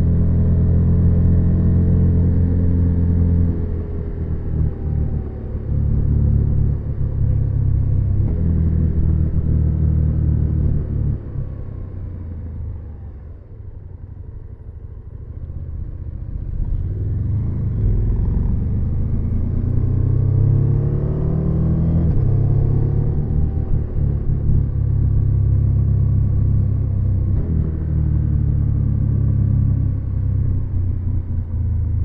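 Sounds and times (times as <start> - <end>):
motorcycle engine revving: 16.4 - 30.2.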